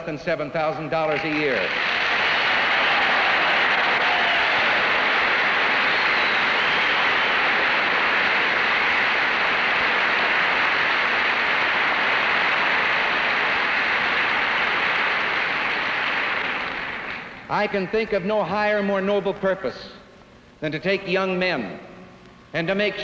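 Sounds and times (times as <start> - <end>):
large audience applauding: 1.1 - 17.5.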